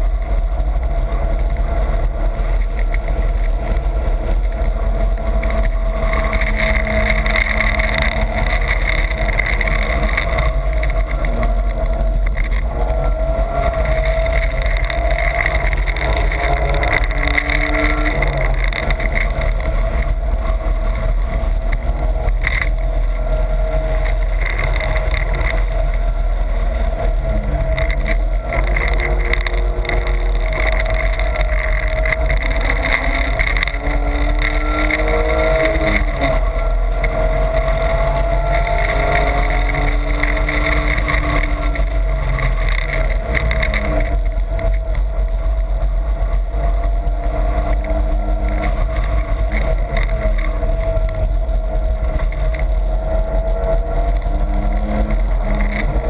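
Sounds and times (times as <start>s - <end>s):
car engine running hard: 0.0s - 56.0s.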